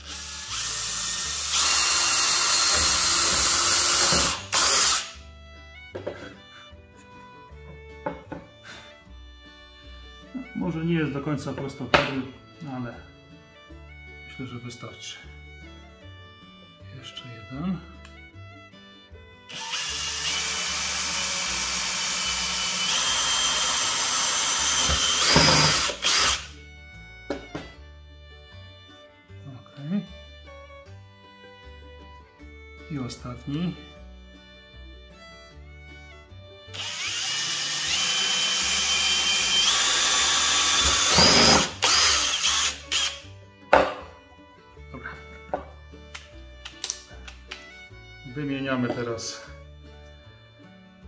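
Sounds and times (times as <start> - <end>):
drill boring into wood: 0.0 - 5.2, 19.5 - 26.5, 36.7 - 43.2.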